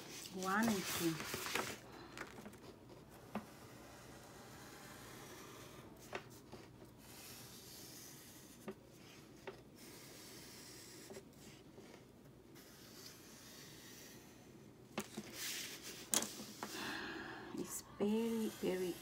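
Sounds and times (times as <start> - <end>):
marker scratching on paper: 7.0 - 9.2, 9.8 - 11.6, 12.6 - 14.4, 18.0 - 19.0.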